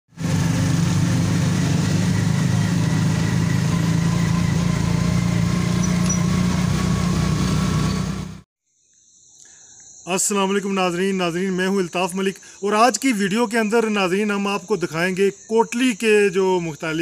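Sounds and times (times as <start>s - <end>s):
small motorcycle engine cruising: 0.1s - 8.4s.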